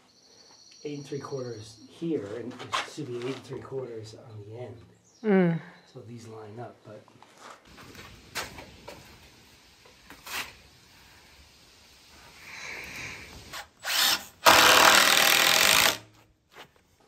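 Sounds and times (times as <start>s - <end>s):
impact driver driving a screw: 13.5s - 16.1s.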